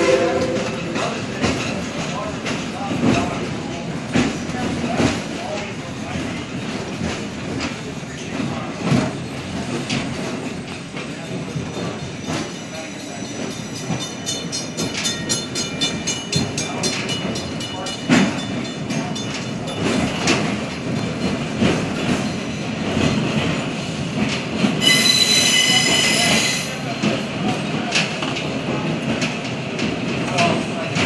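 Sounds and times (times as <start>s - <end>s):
train wheels clattering on rails: 0.0s - 31.0s
high-pitched wheel squeal: 24.8s - 26.6s.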